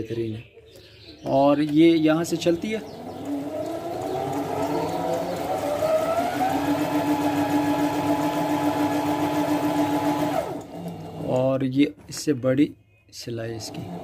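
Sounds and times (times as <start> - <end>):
sewing machine motor running: 2.4 - 11.4, 13.6 - 14.0.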